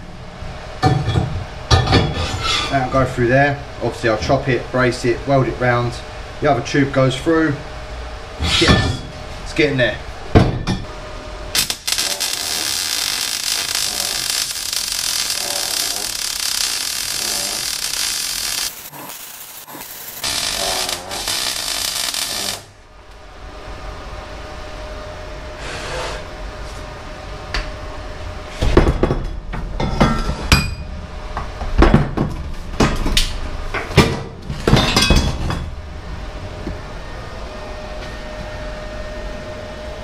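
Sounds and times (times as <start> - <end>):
welding arc crackling: 11.5 - 22.8.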